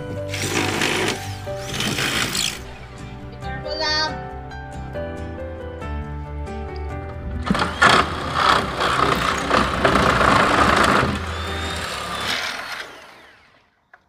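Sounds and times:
power saw cutting wood: 0:00.2 - 0:02.9, 0:07.4 - 0:13.9.

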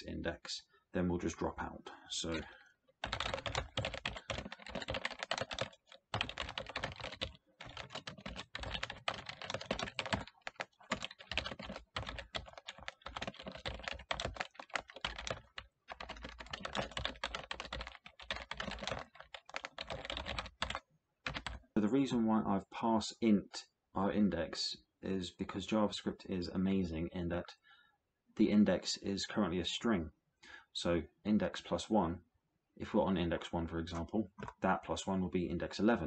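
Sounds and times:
typing on computer keyboard: 0:02.4 - 0:21.6.

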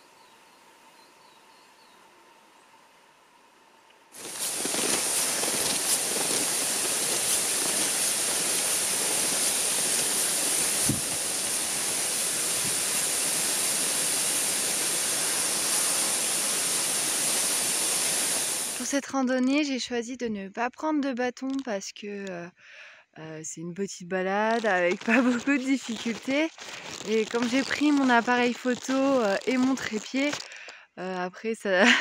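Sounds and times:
steady rushing hiss: 0:04.1 - 0:19.0, 0:24.5 - 0:30.5.

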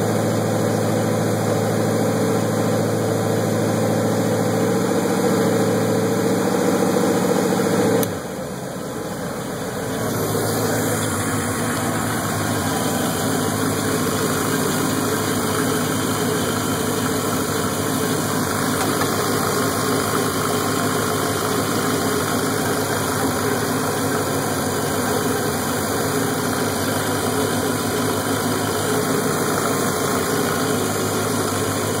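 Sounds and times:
boat engine running: 0:09.4 - 0:32.0.

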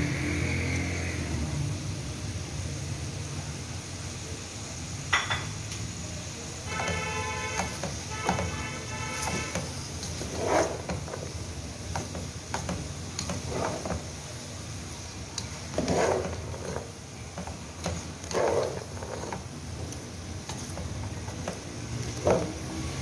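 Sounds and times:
spatula scraping vegetables in pan: 0:06.7 - 0:23.0.

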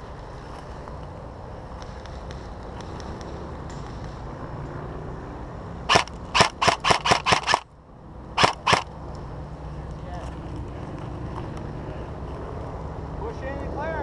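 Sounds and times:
airsoft rifle shots: 0:05.9 - 0:07.7, 0:08.4 - 0:08.9.

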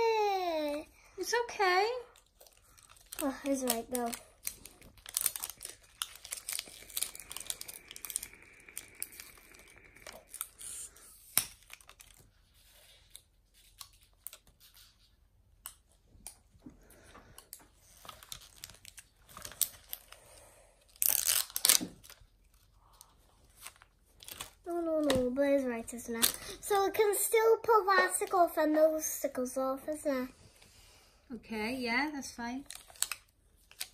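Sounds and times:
wrapper tearing and crinkling: 0:02.2 - 0:15.0, 0:17.5 - 0:25.2, 0:25.9 - 0:26.5, 0:32.6 - 0:33.9.

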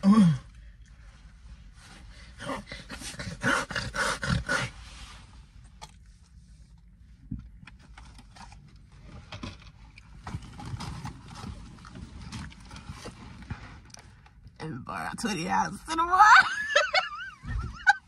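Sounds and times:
people laughing: 0:16.2 - 0:18.0.

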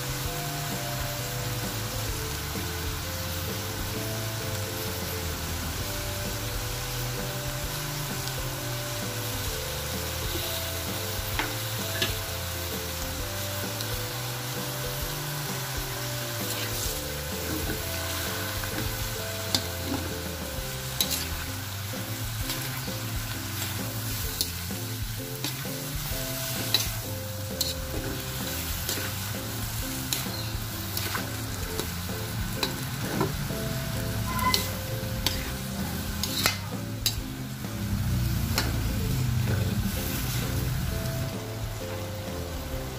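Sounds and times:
vegetables sizzling in a pan: 0:00.0 - 0:42.9
utensil scraping a pan: 0:16.4 - 0:21.5, 0:34.1 - 0:37.2.

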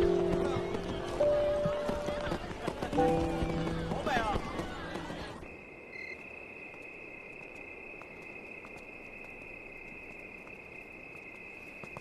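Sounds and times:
crickets trilling: 0:04.9 - 0:12.0.

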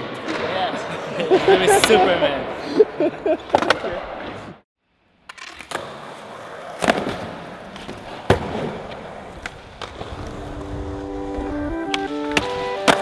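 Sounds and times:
skateboard wheels rolling: 0:05.2 - 0:13.0
skateboard clacking on ground: 0:11.9 - 0:13.0.

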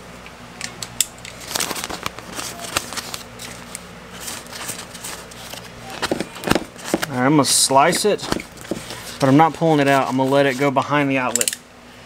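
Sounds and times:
paper crackling and rustling: 0:01.4 - 0:10.8
utility knife cutting paper: 0:02.2 - 0:07.2, 0:07.8 - 0:10.7.

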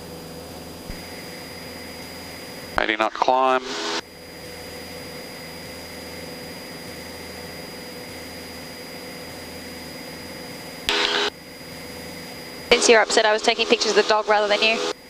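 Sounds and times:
airplane engine drone: 0:00.0 - 0:15.0
voice on radio: 0:02.8 - 0:04.0, 0:12.7 - 0:14.9.

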